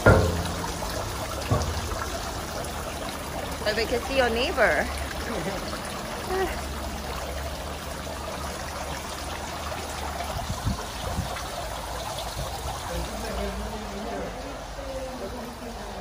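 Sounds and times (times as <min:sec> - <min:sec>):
soft thumps: 0:00.0 - 0:03.1
water trickling into gutter: 0:00.0 - 0:16.0.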